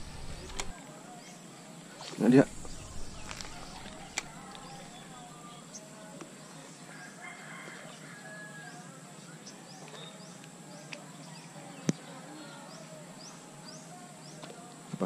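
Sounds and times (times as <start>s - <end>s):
small birds chirping: 0.0s - 7.2s, 7.8s - 15.0s
sharp click: 0.2s - 0.7s
roosters crowing: 2.5s - 5.3s, 6.8s - 9.1s.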